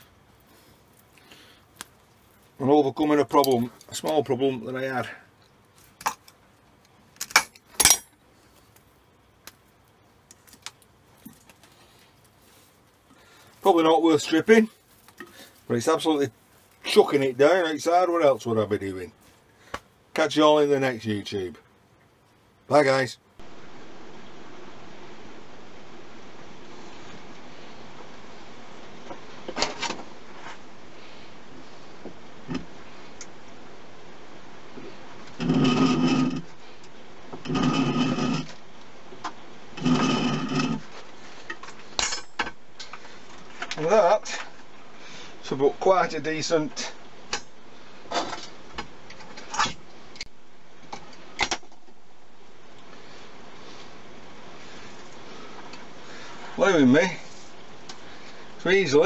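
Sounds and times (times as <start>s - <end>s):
steady hiss: 0.0s - 59.0s
metal tools clinking and rattling: 7.2s - 8.2s, 42.0s - 42.9s.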